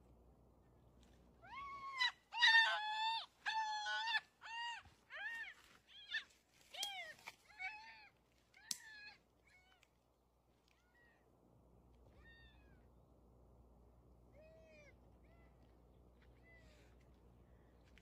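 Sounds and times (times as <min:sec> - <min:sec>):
faint low hum: 0:00.0 - 0:18.0
high animal cries: 0:01.5 - 0:09.8.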